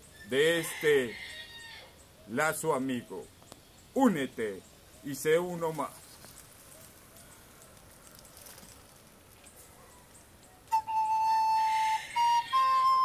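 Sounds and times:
recorder playing notes: 10.7 - 13.0.

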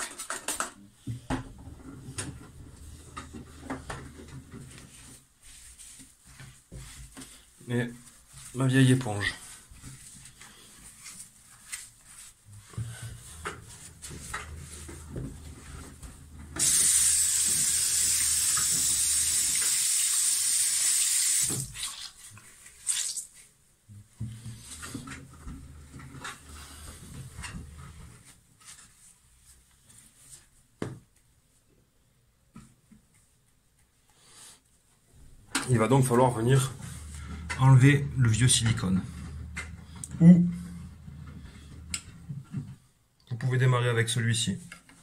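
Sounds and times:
objects being handled: 0.0 - 19.8
faint handling sounds: 1.9 - 16.6, 22.2 - 42.9
tap water pouring over sponge: 16.6 - 23.3.

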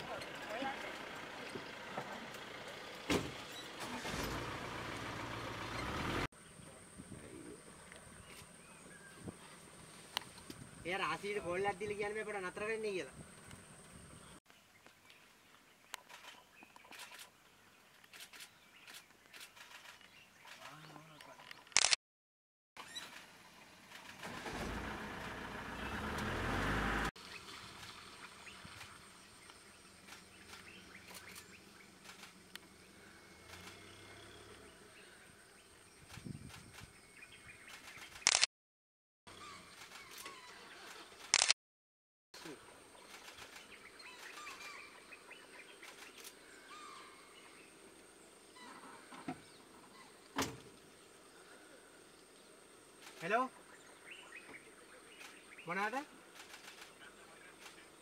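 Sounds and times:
birds chirping: 0.0 - 4.2, 4.8 - 21.8, 25.4 - 38.4, 39.3 - 41.3, 42.4 - 58.0
vehicle engine running: 0.0 - 6.9, 23.7 - 35.2
faint outdoor ambience: 0.0 - 22.0, 22.8 - 38.4, 42.4 - 58.0.

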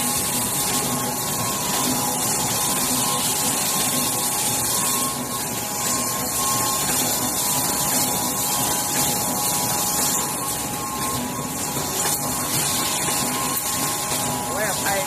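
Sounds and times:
printing machine running: 0.0 - 15.0.

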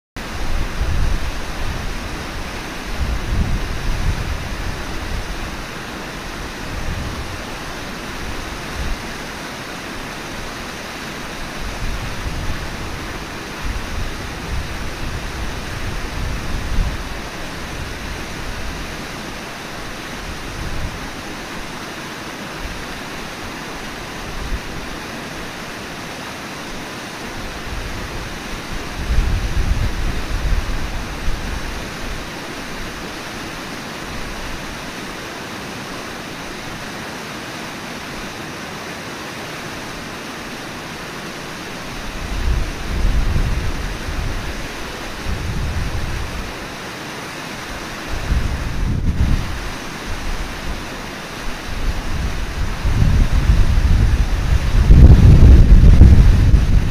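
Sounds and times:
wind buffeting microphone: 0.2 - 9.3, 10.0 - 21.5, 27.4 - 33.1, 41.8 - 46.6, 48.0 - 56.9
river flowing: 0.2 - 56.9.

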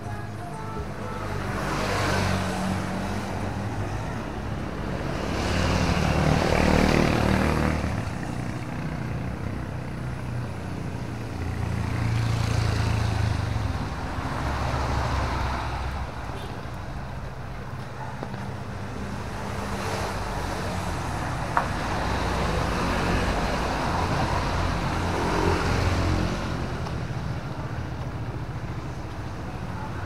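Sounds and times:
vehicle engines passing: 0.0 - 30.0.

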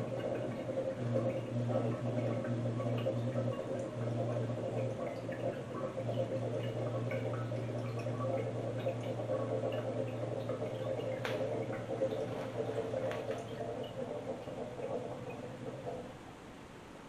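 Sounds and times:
gas bubbling through liquid: 0.0 - 16.3
steady low hum: 0.0 - 17.0.

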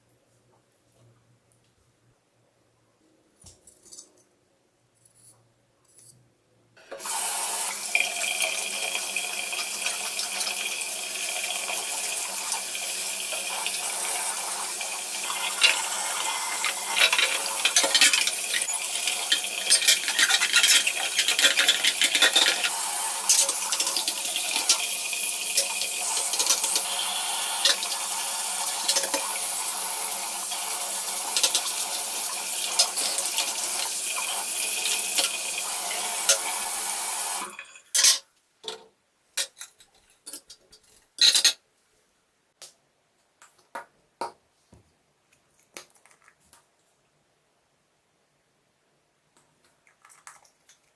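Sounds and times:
paintbrush scrubbing plastic: 15.2 - 22.8
plastic clattering against basin: 16.6 - 22.7.

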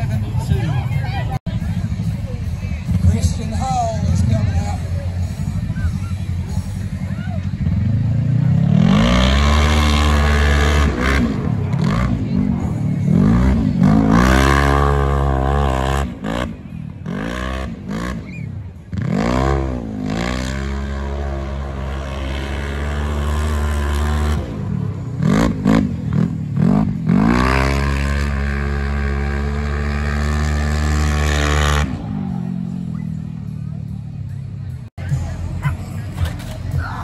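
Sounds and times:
engine revving hard: 7.7 - 18.3, 18.9 - 32.8.

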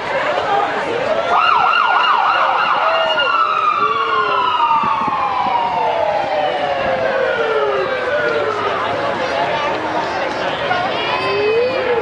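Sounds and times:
vehicle siren wailing: 1.3 - 9.6, 10.8 - 12.0.

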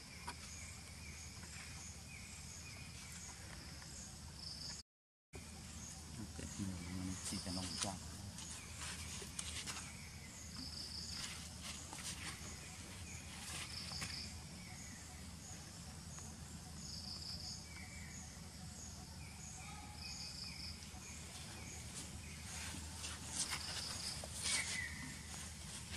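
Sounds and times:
insects chirping: 5.4 - 25.9
steady low background hum: 5.4 - 25.9.

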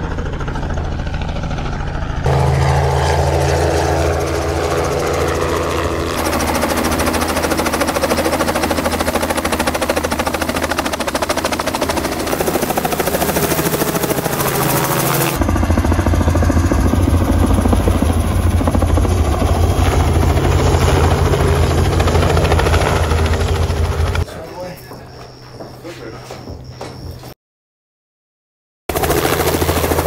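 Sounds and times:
helicopter rotor beating: 0.0 - 27.3, 28.9 - 30.0.

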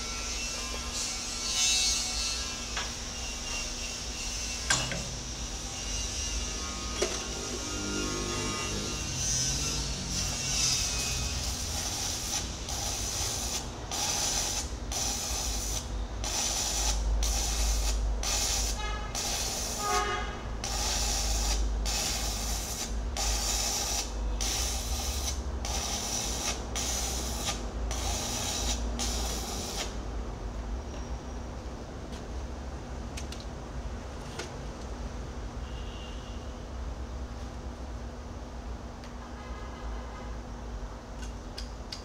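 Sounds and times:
welding arc crackling and hissing: 8.5 - 30.0.

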